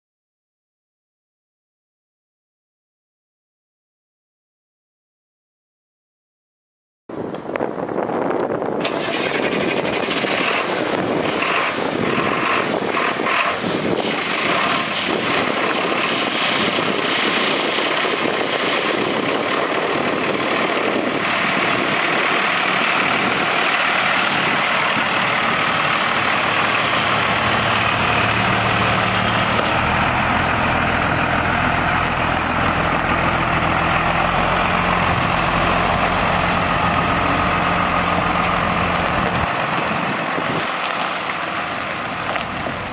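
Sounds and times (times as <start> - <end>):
wind buffeting: 7.2 - 42.9
diesel truck engine idling: 8.8 - 42.9.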